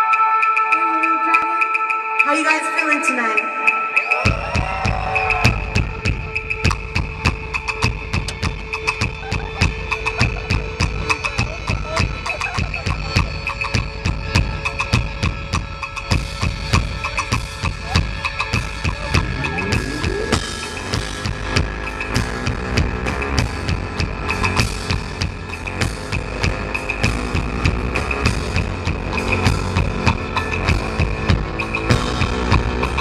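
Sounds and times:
keyboards: 0.0 - 33.0
drum kit fast beat: 4.2 - 33.0
rising synth sweep: 18.7 - 23.2.

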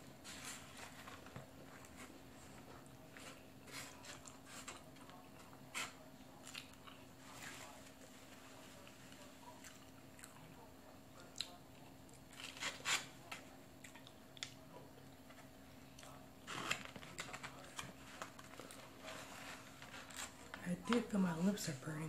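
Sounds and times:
faint steady hum: 0.0 - 22.0
person chewing food: 3.8 - 5.6, 6.4 - 7.4, 9.1 - 12.5, 13.8 - 15.2.

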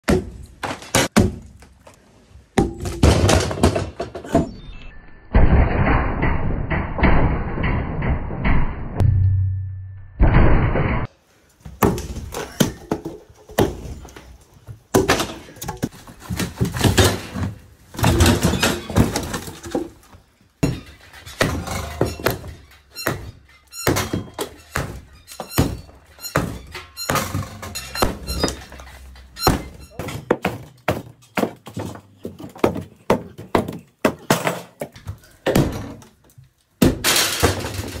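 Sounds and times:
sledgehammers striking logs: 0.0 - 1.7, 20.6 - 32.0, 32.6 - 36.1, 36.8 - 38.0.

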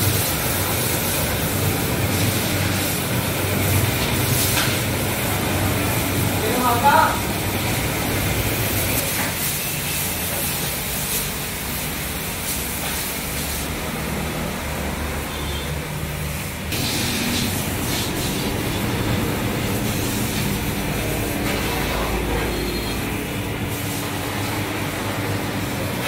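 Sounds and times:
water spray hissing: 16.6 - 26.0
low machine hum: 16.7 - 26.0.

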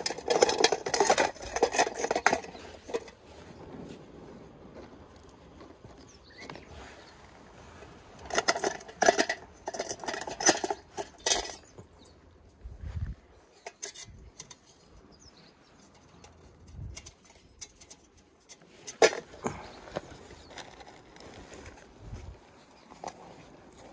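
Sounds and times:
metal stand clinking on stones: 0.0 - 3.2, 8.2 - 12.2, 13.5 - 15.0.

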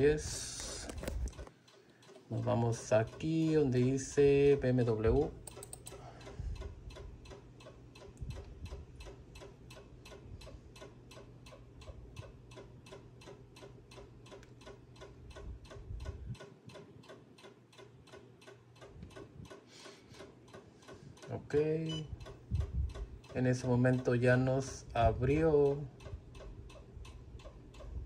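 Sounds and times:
steady ticking: 1.4 - 28.0
faint low hum: 21.1 - 28.0.

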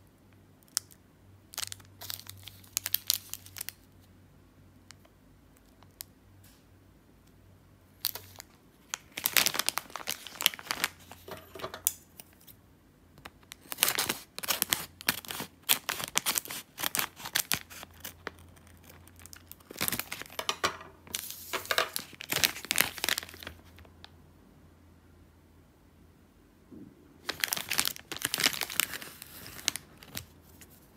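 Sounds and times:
plastic wrappers crinkling: 0.7 - 3.9, 8.0 - 12.5, 13.2 - 23.9, 27.2 - 30.9
plastic bag tearing: 8.0 - 11.4, 13.5 - 23.8, 27.2 - 30.3.

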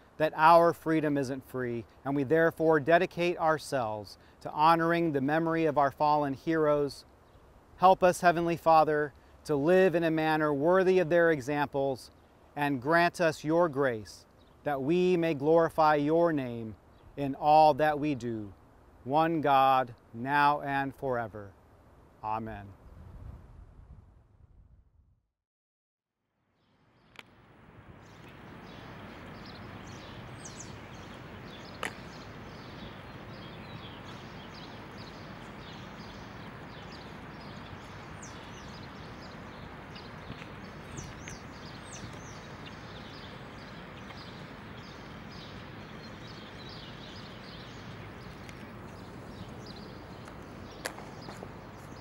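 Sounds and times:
small birds chirping: 11.0 - 18.7, 28.0 - 52.0
sharp click: 31.7 - 32.0.

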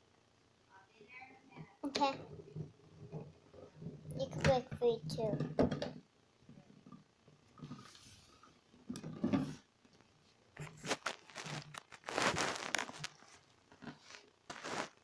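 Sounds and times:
rustling scraping handling noise: 10.6 - 15.0.

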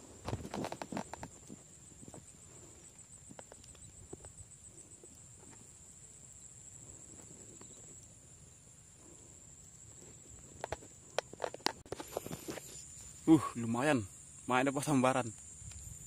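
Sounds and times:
handling knocks and rustles: 0.0 - 2.4
high-pitched insect drone: 0.0 - 16.0.

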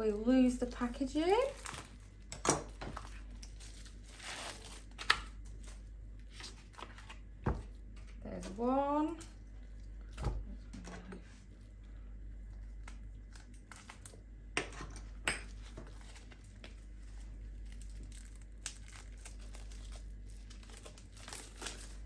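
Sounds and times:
plastic packaging crinkling and tearing: 0.1 - 7.2, 12.5 - 14.2, 15.6 - 22.0.

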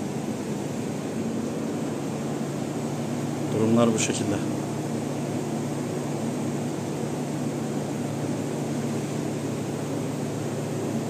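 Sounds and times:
workshop machinery hum: 0.0 - 11.0.

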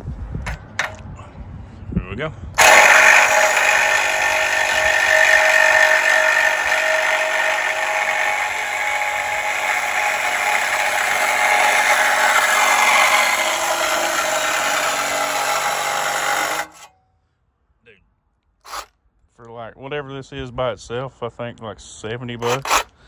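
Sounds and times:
reciprocating saw cutting steel pipe: 2.6 - 16.9, 18.7 - 18.9, 22.4 - 23.0.

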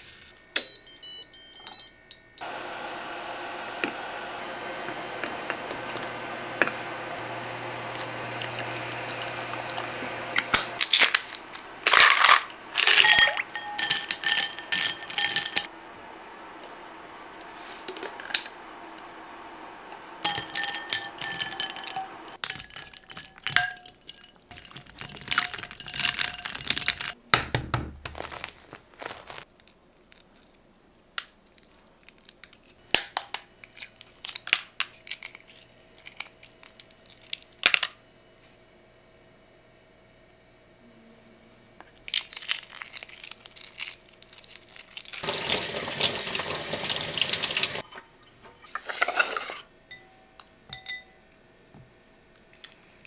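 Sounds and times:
pot of water humming on hob: 2.4 - 25.9
egg shells cracking: 7.9 - 15.7, 20.2 - 27.2, 28.0 - 38.0, 42.0 - 47.6
glass bowl ringing: 12.9 - 15.7, 20.2 - 22.3, 49.9 - 51.2
tongs clinking against pot: 49.9 - 51.2.

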